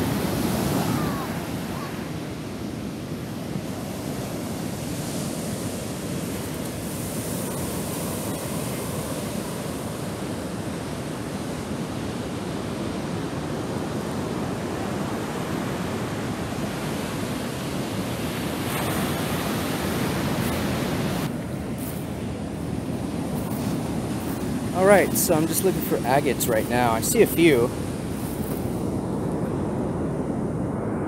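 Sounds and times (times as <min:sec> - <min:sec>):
ocean waves breaking on sand: 0:00.0 - 0:31.0.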